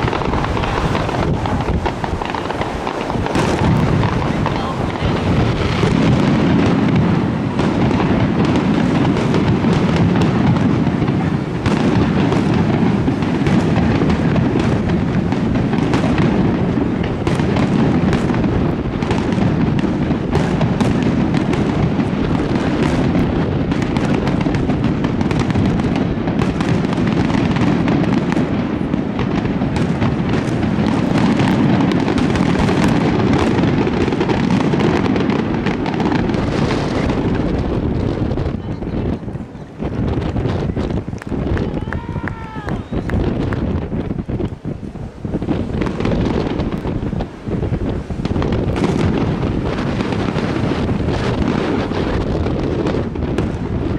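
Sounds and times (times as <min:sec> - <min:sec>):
firework shell bursts: 0:00.0 - 0:27.9
rumble of echoing detonations: 0:00.0 - 0:53.9.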